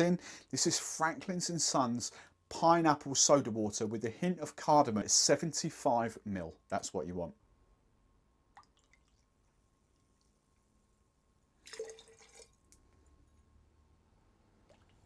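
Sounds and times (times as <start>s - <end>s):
liquid splashing into metal cup: 11.6s - 12.9s.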